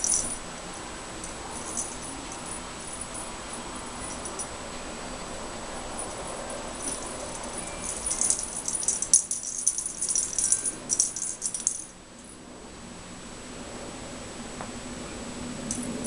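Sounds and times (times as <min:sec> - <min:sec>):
bell ball jingling and rattling: 0:00.0 - 0:04.6, 0:05.8 - 0:12.0, 0:15.7 - 0:16.0.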